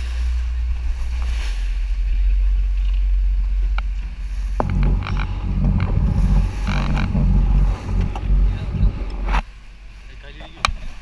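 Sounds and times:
wind buffeting microphone: 0:01.9 - 0:09.4.

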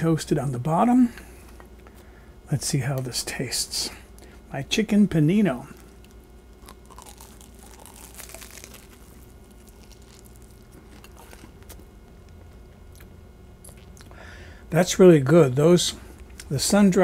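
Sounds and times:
toasted bread crackling: 0:05.5 - 0:12.0
man biting and chewing: 0:05.8 - 0:14.2.

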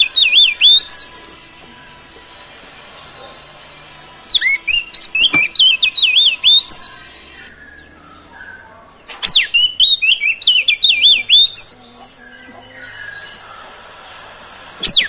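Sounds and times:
bird singing whistled notes: 0:00.0 - 0:01.4, 0:04.2 - 0:13.7.

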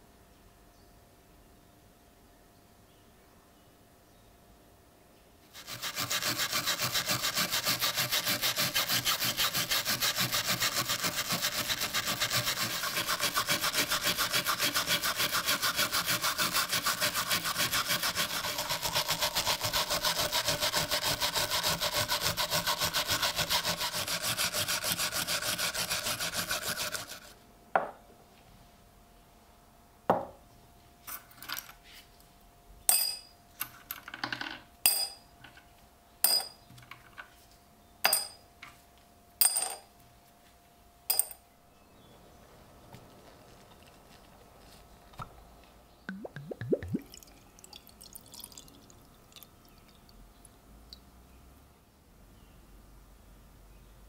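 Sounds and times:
wire brush scrubbing metal: 0:05.5 - 0:27.3.

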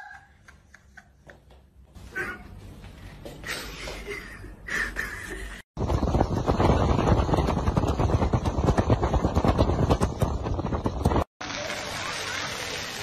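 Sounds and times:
wind buffeting microphone: 0:05.8 - 0:11.3.

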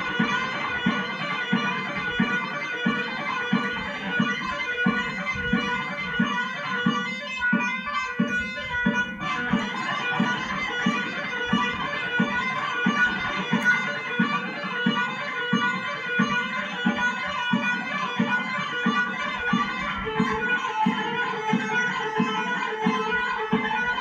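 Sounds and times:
steady low beat: 0:00.0 - 0:24.0
electric guitar fast runs: 0:08.0 - 0:24.0.

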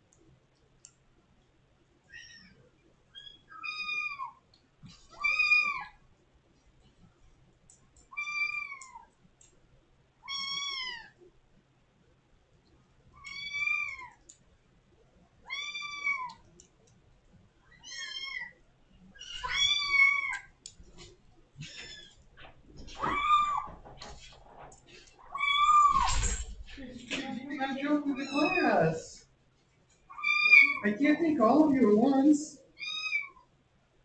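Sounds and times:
kitten meowing loudly: 0:30.1 - 0:30.8.

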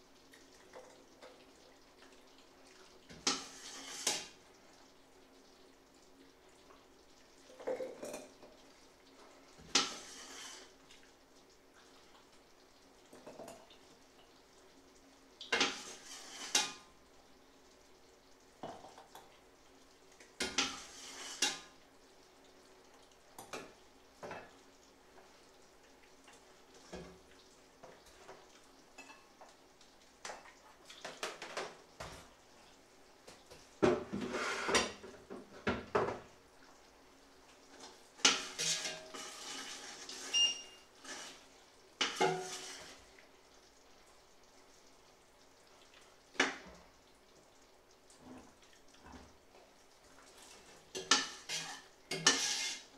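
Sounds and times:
metal ladle clinking and scraping: 0:38.3 - 0:41.4, 0:51.1 - 0:52.8.

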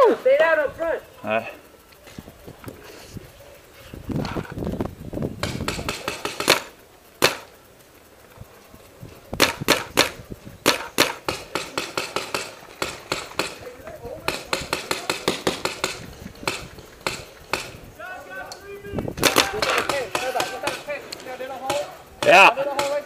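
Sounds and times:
paintball markers firing: 0:05.4 - 0:07.6, 0:09.4 - 0:17.9, 0:19.2 - 0:23.0.

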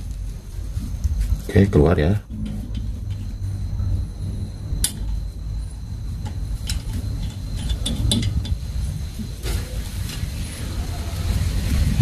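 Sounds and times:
steady low hum: 0:00.0 - 0:12.0
spanner and bolt clinking: 0:04.8 - 0:09.0.

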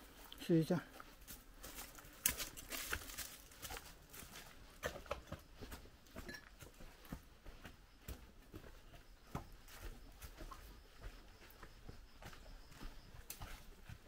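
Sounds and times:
quiet footsteps: 0:00.0 - 0:14.0.

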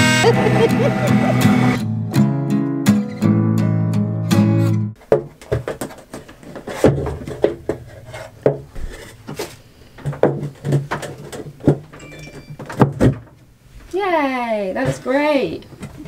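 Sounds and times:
acoustic guitar music: 0:00.0 - 0:05.0
wooden shelf knocking and bumping: 0:05.0 - 0:13.4
wood rubbing on wood: 0:05.4 - 0:11.6.

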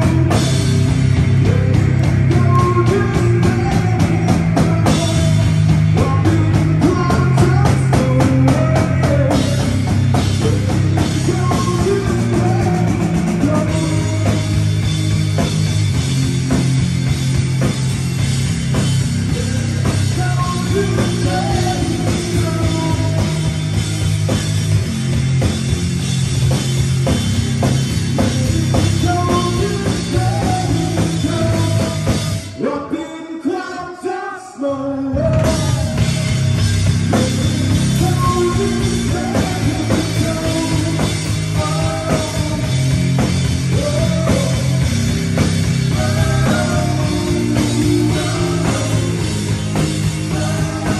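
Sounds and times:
electric bass: 0:00.0 - 0:32.6, 0:35.1 - 0:50.9
drum kit: 0:00.0 - 0:32.7, 0:35.1 - 0:50.9
electric guitar: 0:35.2 - 0:50.9.

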